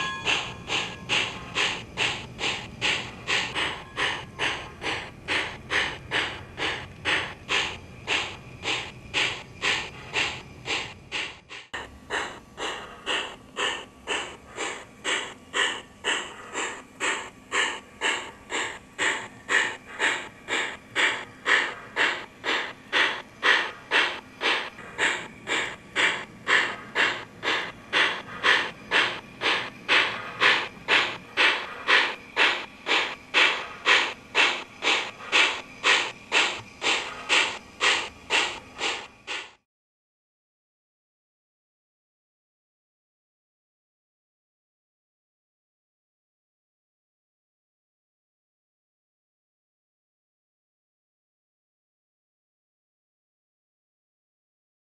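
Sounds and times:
model train steam chuffs: 0.0 - 39.6.

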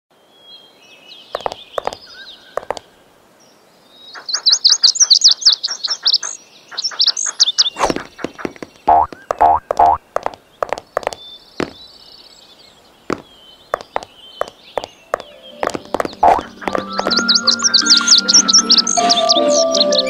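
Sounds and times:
cartoon bird chirping: 8.8 - 10.3, 16.1 - 19.5
short pops: 13.1 - 17.2.

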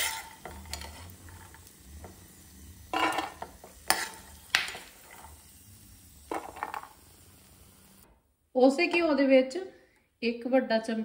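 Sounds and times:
nuts rattling in pan: 0.0 - 1.7, 2.9 - 5.4, 6.3 - 7.0.

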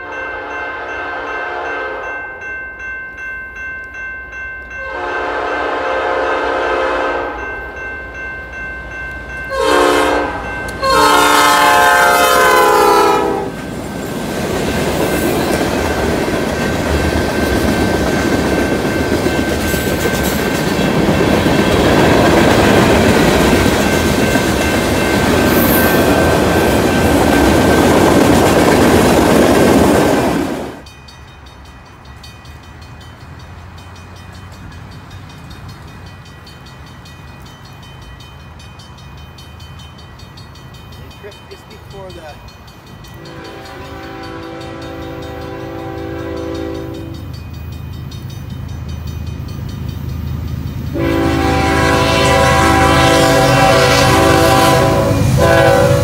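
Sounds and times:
train horn blasts: 0.0 - 2.1, 4.8 - 7.5, 9.5 - 13.6, 43.2 - 47.2, 50.9 - 56.0
crossing bell ringing: 0.0 - 28.9, 30.8 - 56.0
train wheels clattering on rails: 13.5 - 56.0.

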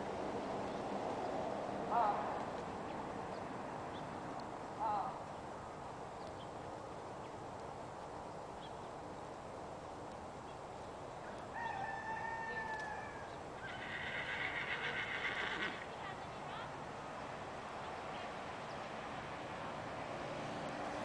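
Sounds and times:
faint outdoor background: 0.0 - 21.0
horse whinnying: 12.7 - 15.9.

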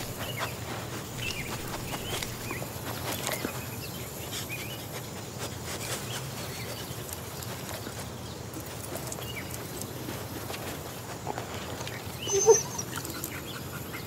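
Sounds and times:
bird chirps: 12.2 - 14.0.

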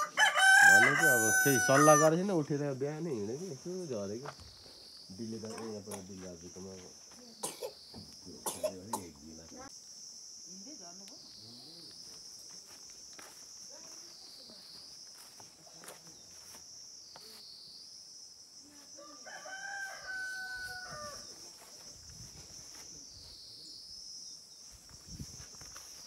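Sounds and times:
rooster crowing: 0.0 - 2.2, 19.0 - 21.4
high insect drone: 0.0 - 26.0.

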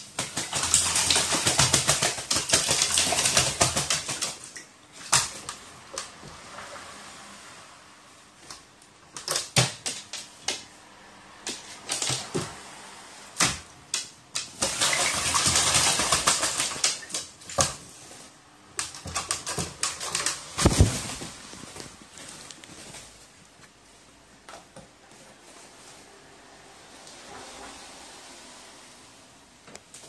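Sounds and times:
crow splashing in water: 0.0 - 6.1, 14.4 - 17.8.

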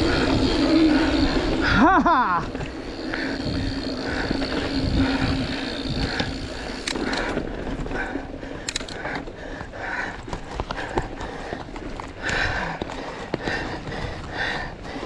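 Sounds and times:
bicycle freehub ratcheting: 0.0 - 9.2.

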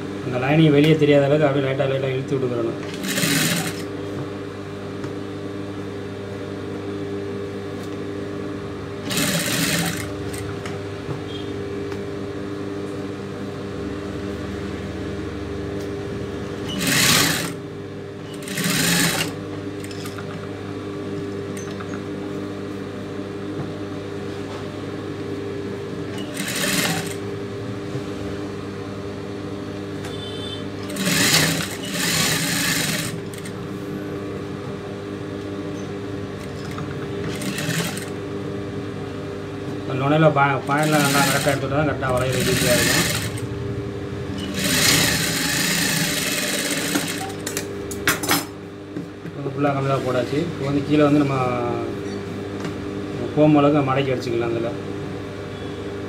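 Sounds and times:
fast machine stitching: 2.9 - 3.9, 9.0 - 10.4, 16.6 - 17.6, 18.3 - 20.0, 26.2 - 27.2, 30.8 - 33.5, 36.6 - 38.2, 40.6 - 43.4, 44.4 - 47.6
sewing machine motor humming: 2.9 - 3.9, 9.0 - 10.6, 16.6 - 17.6, 18.3 - 20.1, 26.1 - 27.2, 30.2 - 33.6, 36.4 - 38.2, 40.6 - 43.5, 44.3 - 47.6.

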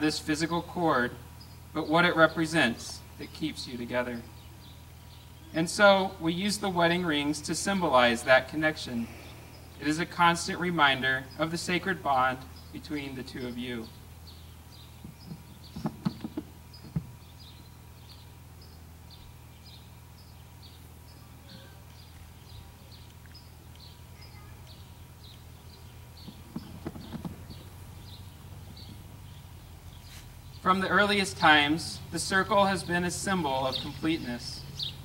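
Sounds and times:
bird chirping: 0.0 - 35.0
low steady hum: 0.0 - 35.0
soft knocks: 15.0 - 17.2.

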